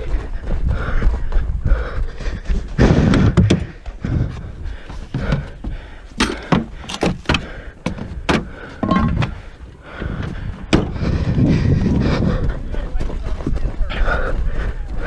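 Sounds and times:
sharp clicks and knocks: 6.2s - 9.4s.

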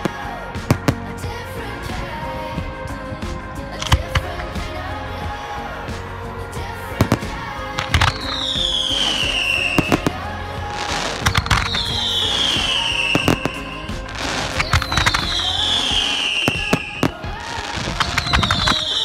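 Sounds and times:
fireworks bangs: 0.0s - 19.0s
fireworks whistles falling: 7.0s - 19.0s.

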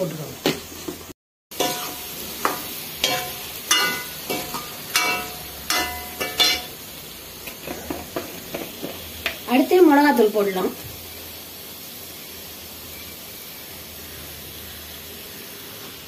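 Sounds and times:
vegetables sizzling in oil: 0.0s - 16.0s
metal ladle clanking on a pan: 1.6s - 6.8s.

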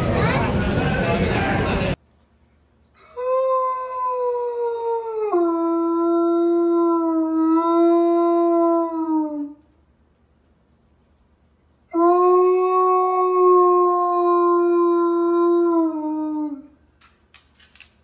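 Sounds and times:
dog howling: 3.2s - 9.6s, 12.0s - 16.8s.

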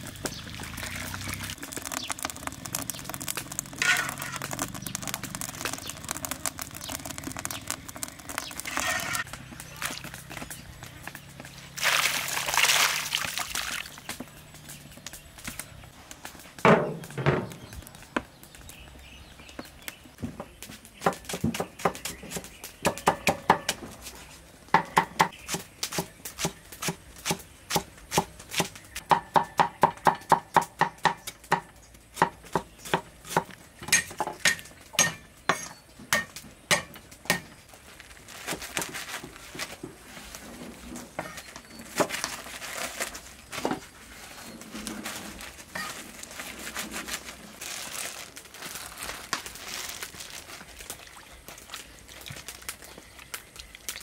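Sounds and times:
rustling and handling noise: 37.1s - 53.8s.

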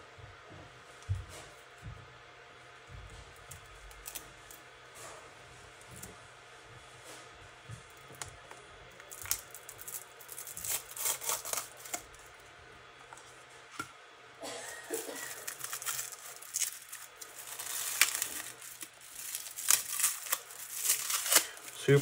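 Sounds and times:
plastic packaging crinkling: 8.9s - 12.4s, 14.6s - 22.0s.

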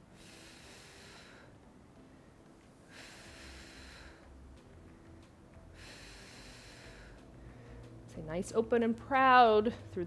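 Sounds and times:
woman breathing out: 0.1s - 4.4s, 5.7s - 8.0s.

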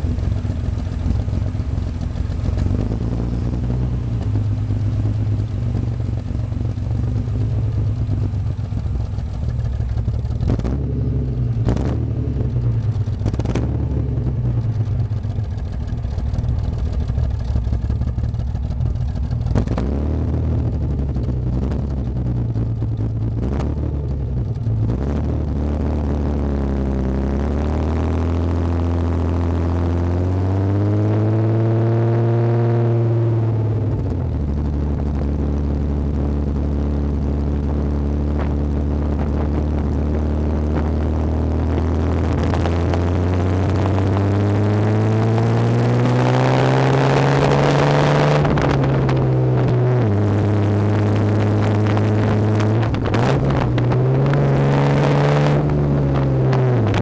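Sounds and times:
car exhaust engine note: 0.0s - 57.0s
wind rushing over microphone: 37.7s - 57.0s.

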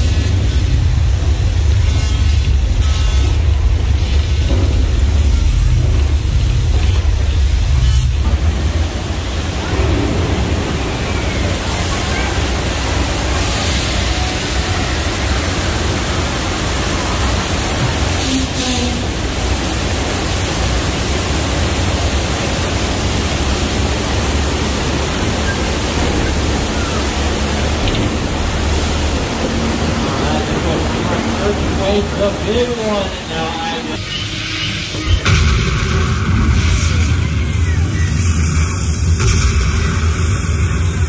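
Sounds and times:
deep rumble: 0.0s - 18.2s, 19.0s - 34.0s, 34.9s - 41.0s
pouring water: 2.5s - 33.4s.

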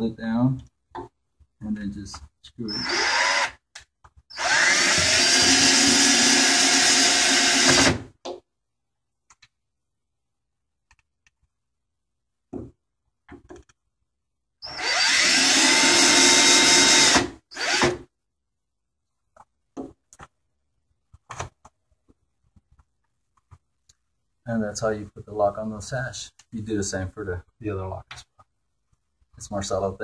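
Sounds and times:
cordless drill driving screws: 2.7s - 3.6s, 4.3s - 8.0s, 14.6s - 18.0s.

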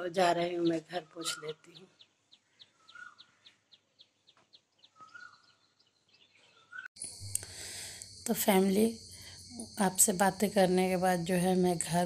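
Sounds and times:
small bird chirping: 0.3s - 8.3s
whistled bird notes: 2.7s - 3.6s, 4.8s - 6.9s.

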